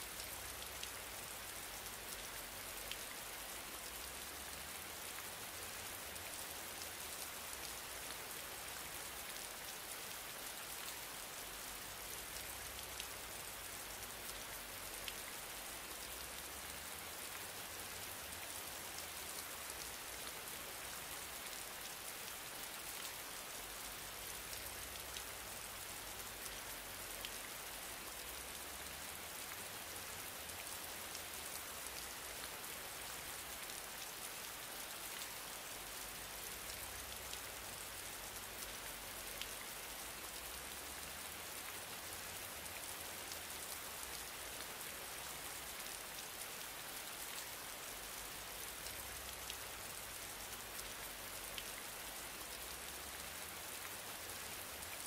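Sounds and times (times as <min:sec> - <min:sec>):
rain hiss with scattered ticks: 0:00.0 - 0:55.0.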